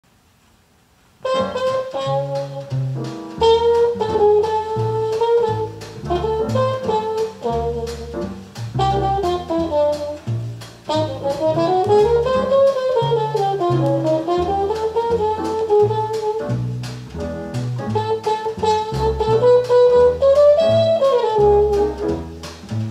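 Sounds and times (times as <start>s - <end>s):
jazz over loudspeakers: 1.2s - 22.9s.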